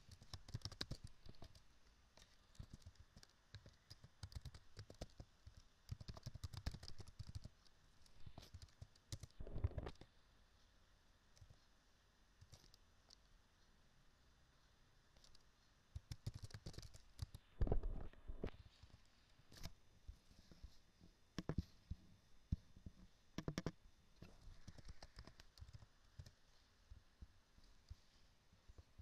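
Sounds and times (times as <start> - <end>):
keyboard keystrokes: 2.6 - 5.2, 5.9 - 7.5, 16.0 - 17.8
mouse clicks: 21.4 - 22.0, 23.4 - 26.4.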